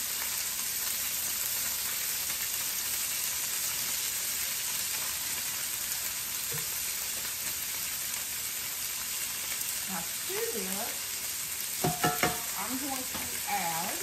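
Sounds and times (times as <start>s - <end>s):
chicken sizzling in oil: 0.0s - 14.0s.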